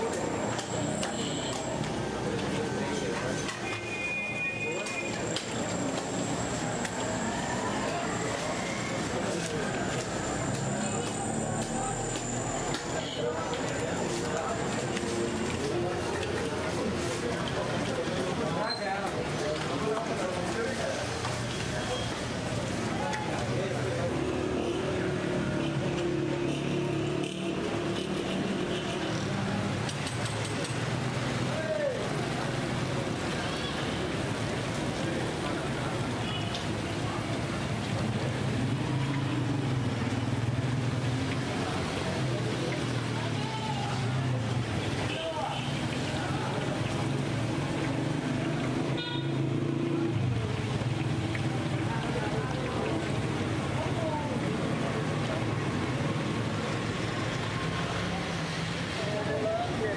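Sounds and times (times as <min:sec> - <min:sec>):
street traffic noise: 0:00.0 - 0:59.9.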